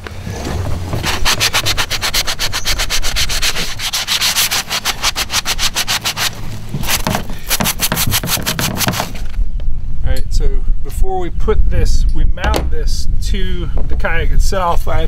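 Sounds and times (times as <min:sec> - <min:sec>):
sandpaper rubbing on plastic: 0:00.2 - 0:09.4.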